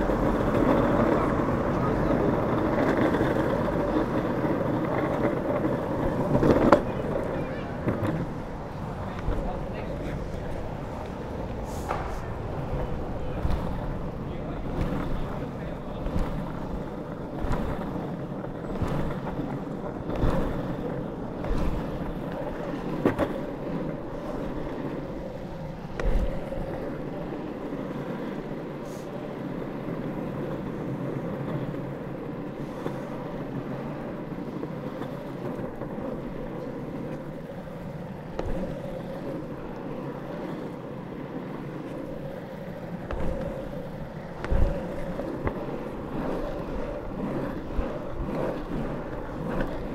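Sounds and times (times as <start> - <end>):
board knocking over bumps: 0.0 - 28.6, 29.5 - 49.9
foot pushing off road: 0.0 - 49.9
longboard wheels rolling on asphalt: 0.0 - 49.9.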